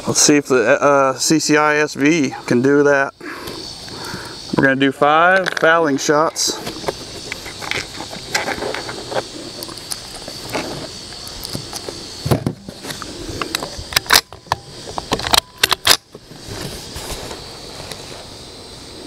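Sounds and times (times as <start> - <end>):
dull thump: 12.2 - 12.8.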